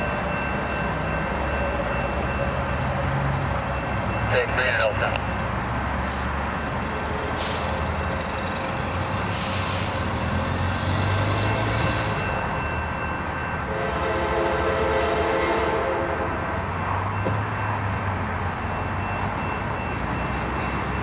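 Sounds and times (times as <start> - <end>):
diesel train engine humming: 0.0 - 21.0
train horn: 13.6 - 16.5.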